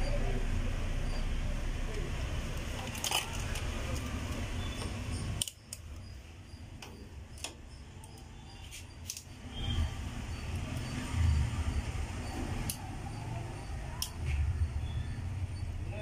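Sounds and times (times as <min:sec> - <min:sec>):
handling clicks and rustling: 0:02.5 - 0:06.0.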